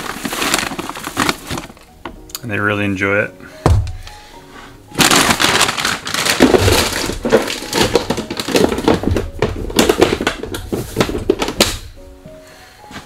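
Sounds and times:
plastic bag of seeds crinkling: 0.0 - 2.0, 4.9 - 11.9.

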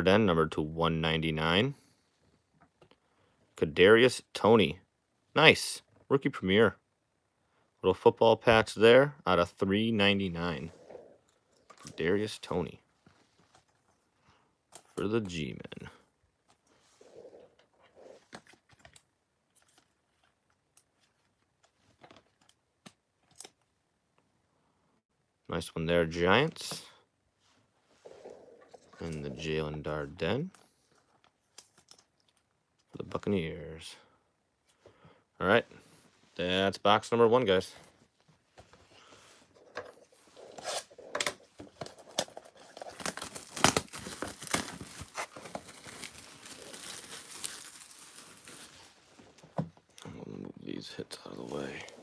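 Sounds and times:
plastic wrap tearing and crinkling: 40.5 - 49.0.

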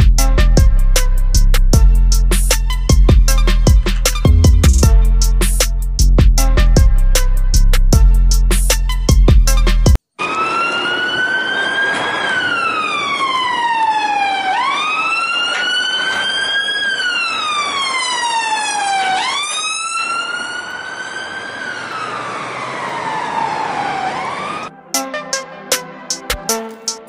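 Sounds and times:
police siren wailing: 10.2 - 25.4.

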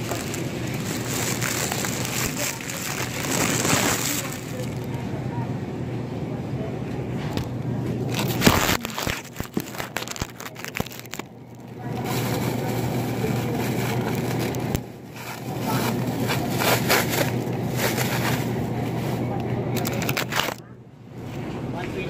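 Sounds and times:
plastic bag crinkling: 0.0 - 4.9, 8.0 - 18.6, 19.8 - 20.6.

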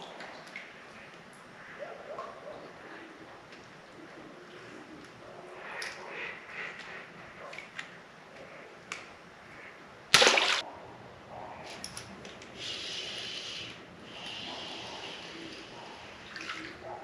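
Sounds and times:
fish splashing at water surface: 10.1 - 10.6, 12.8 - 16.8.

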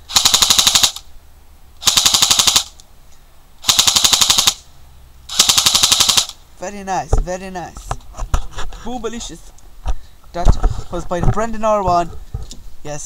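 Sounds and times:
airsoft gun firing bursts: 0.1 - 1.0, 1.8 - 2.8, 3.6 - 4.6, 5.3 - 6.4.

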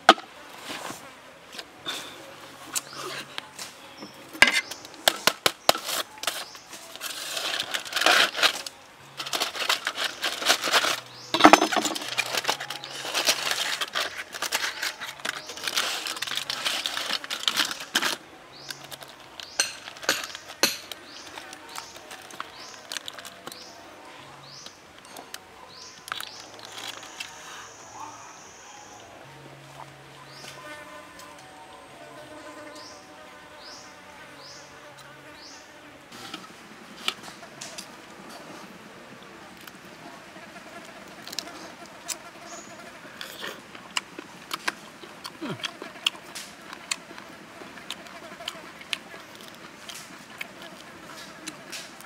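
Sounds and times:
aluminium foil crinkling and tearing: 4.6 - 23.8, 25.8 - 27.4, 40.8 - 52.0.

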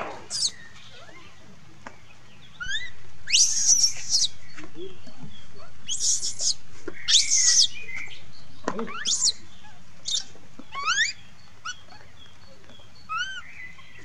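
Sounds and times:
baby monkey screaming: 0.0 - 1.3, 2.6 - 4.3, 5.6 - 7.7, 8.8 - 11.9, 13.1 - 14.0.

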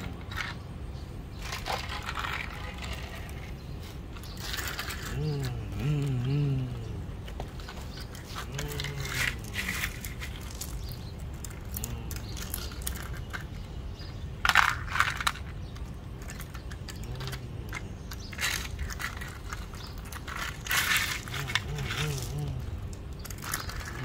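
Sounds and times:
gravel rattling against plastic: 0.0 - 24.0.

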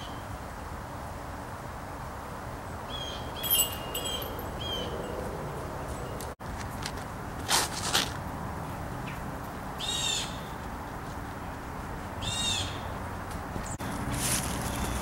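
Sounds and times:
disc golf throw bursts: 6.6 - 8.2
bird calling: 12.2 - 13.0.

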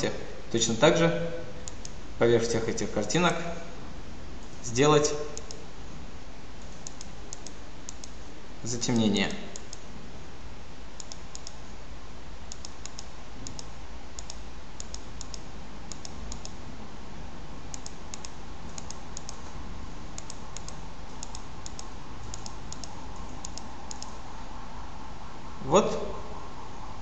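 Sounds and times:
steady low hum: 0.0 - 27.0
computer mouse clicking: 1.6 - 2.0, 5.4 - 5.6, 6.6 - 8.2, 9.6 - 9.9, 11.0 - 11.7, 12.5 - 16.6, 17.7 - 24.2.

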